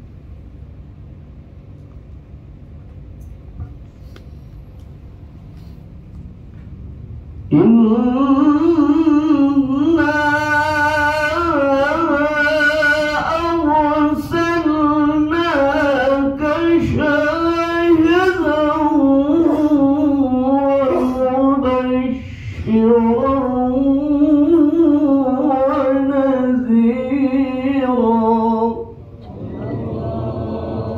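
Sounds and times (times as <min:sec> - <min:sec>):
man chanting into microphone: 0:07.5 - 0:30.9.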